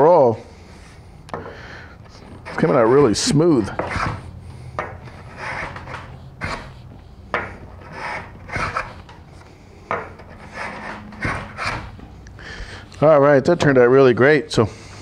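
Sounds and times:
hand plane shaving wood: 2.2 - 4.3, 5.0 - 6.8, 7.6 - 9.1, 10.1 - 12.0.

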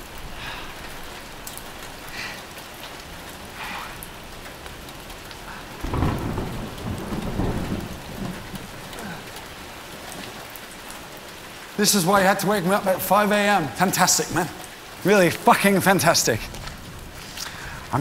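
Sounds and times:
steady rain falling: 0.0 - 18.0
low rumble of thunder: 5.0 - 10.8.

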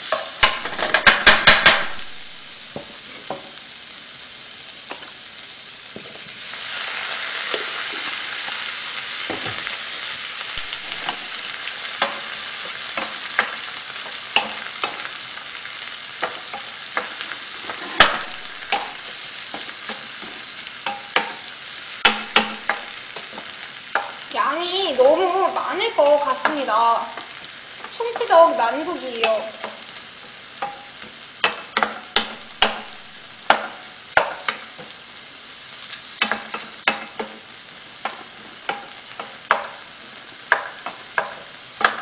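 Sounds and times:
vegetables sizzling in a pan: 0.0 - 42.0
spatula scraping a pan: 10.6 - 24.3, 29.2 - 35.0, 35.8 - 37.4.

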